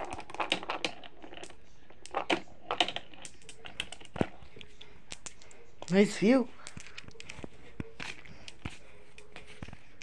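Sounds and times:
plastic toy parts clicking: 0.0 - 4.3.

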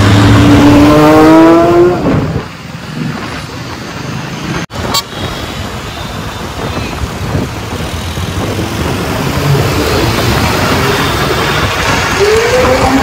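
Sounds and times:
vehicle rushing rumble: 0.0 - 13.0.

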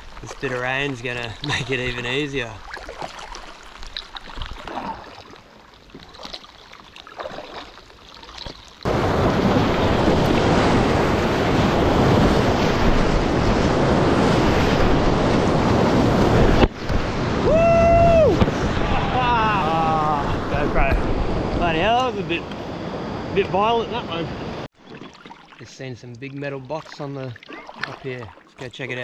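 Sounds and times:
paddle strokes splashing: 0.0 - 17.4, 24.7 - 29.0.

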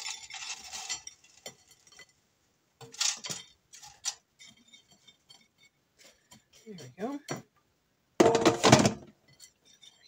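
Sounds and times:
fries clattering onto a plate: 8.2 - 9.1.

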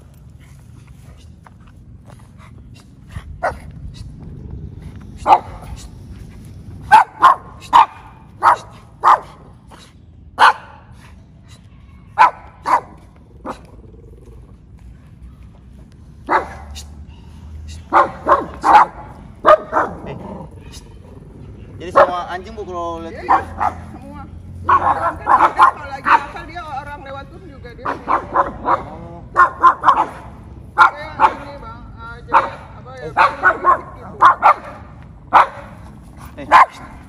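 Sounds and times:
small dog barking: 3.4 - 3.7, 5.2 - 5.7, 6.9 - 9.4, 10.4 - 10.9, 12.2 - 13.7, 16.3 - 16.8, 17.9 - 20.8, 21.9 - 22.3, 23.2 - 23.9, 24.6 - 26.4, 27.8 - 31.5, 32.3 - 35.8, 36.5 - 37.0.

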